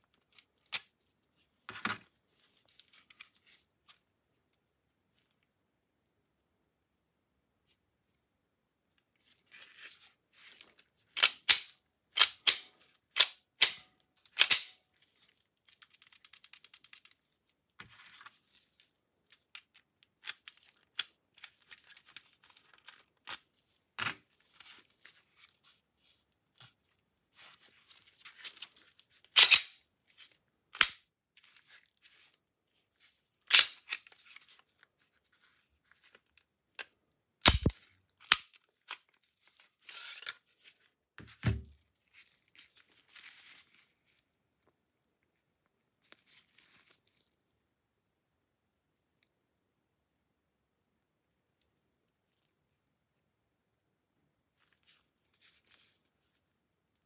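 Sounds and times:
pistol parts clicking: 11.2s - 14.8s, 29.4s - 29.8s, 30.8s - 31.0s, 33.5s - 34.1s, 37.4s - 38.6s.

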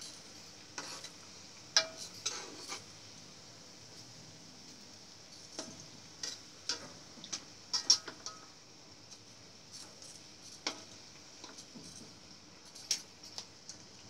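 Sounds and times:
food deep-frying in oil: 0.0s - 14.0s
metal utensils clinking on wok: 7.7s - 8.5s.

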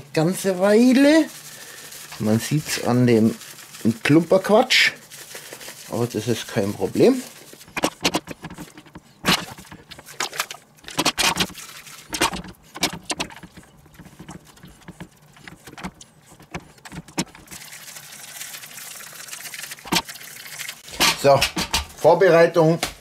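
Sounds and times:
spice shaken from paper bag: 0.3s - 8.7s
meat handled in metal tray: 0.3s - 17.6s.

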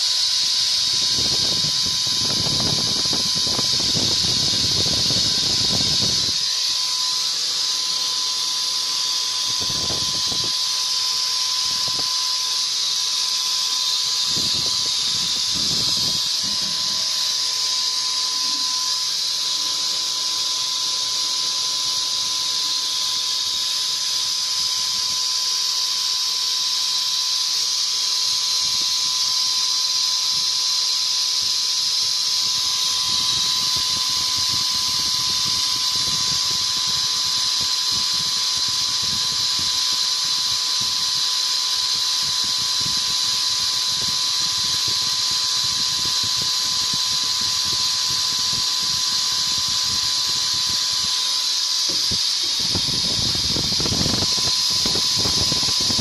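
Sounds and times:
hiss of air and spray: 0.0s - 56.0s
paint sprayer turbine whine: 0.0s - 56.0s.

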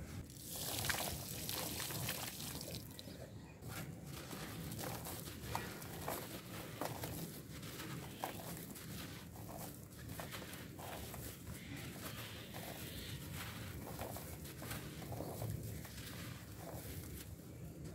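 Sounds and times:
mud paste pouring into a bowl: 0.3s - 3.0s
wet grit pattering into a bowl: 3.7s - 17.9s.

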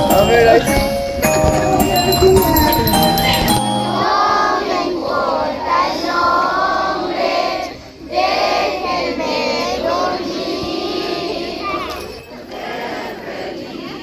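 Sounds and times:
instrumental christmas music: 0.0s - 4.4s
children singing in chorus: 4.0s - 14.0s.

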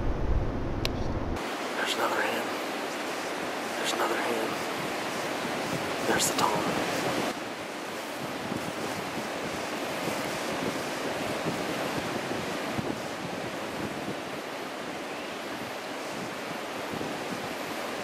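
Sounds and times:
wind buffeting microphone: 0.0s - 1.6s, 4.4s - 18.0s
wind rushing through brush: 0.0s - 18.0s.

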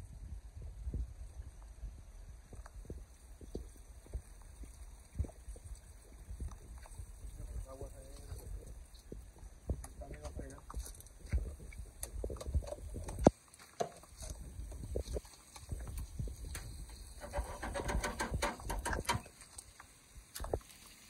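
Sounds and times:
crackling: 2.5s - 21.0s
knocks and clicks handling grill: 16.5s - 19.3s.

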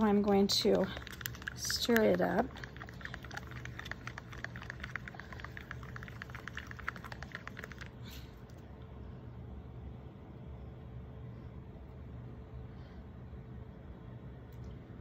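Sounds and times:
stir stick ticking against cup: 0.3s - 8.0s.

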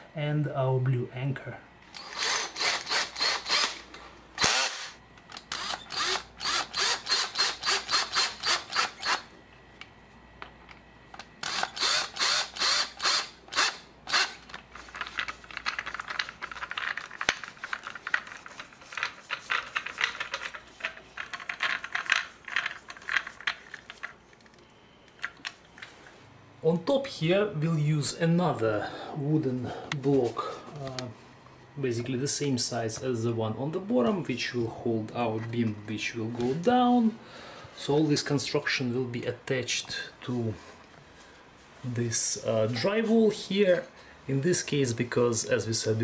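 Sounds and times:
screwdriver ratcheting clicks: 2.0s - 3.8s, 4.4s - 9.3s, 11.4s - 17.8s.

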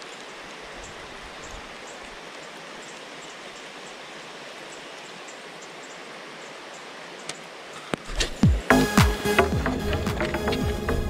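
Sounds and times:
rain falling on water: 0.0s - 11.0s.

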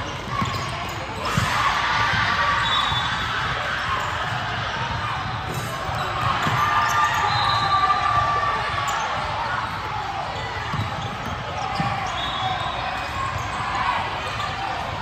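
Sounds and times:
murmur of spectators chatting: 0.0s - 15.0s
sneaker squeaks: 0.0s - 15.0s
basketball bouncing: 4.2s - 6.7s, 10.7s - 12.0s.

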